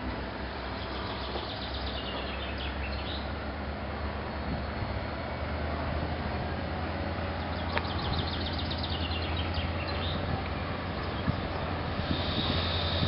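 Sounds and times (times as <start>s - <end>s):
diesel locomotive idling: 0.0s - 13.0s
songbird chirping: 0.4s - 3.4s, 7.1s - 13.0s.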